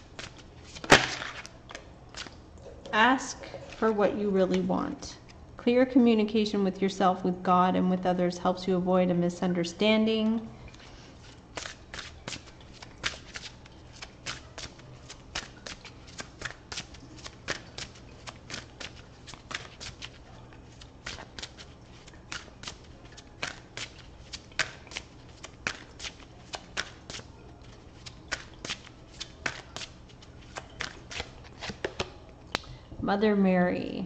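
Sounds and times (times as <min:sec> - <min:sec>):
cards being shuffled: 0:00.1 - 0:02.4, 0:11.2 - 0:32.2.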